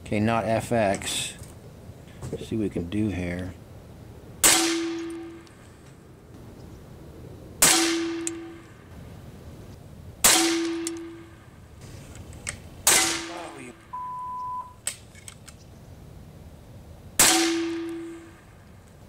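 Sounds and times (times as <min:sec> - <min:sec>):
air rifle shots: 0:04.4 - 0:05.6, 0:07.6 - 0:08.8, 0:10.2 - 0:11.5, 0:12.8 - 0:13.9, 0:17.2 - 0:18.5
steady beep: 0:13.8 - 0:14.8.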